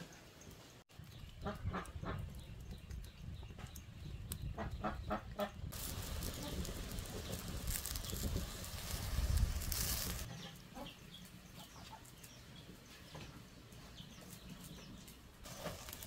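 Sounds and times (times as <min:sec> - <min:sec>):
chickens clucking: 0:10.2 - 0:15.0.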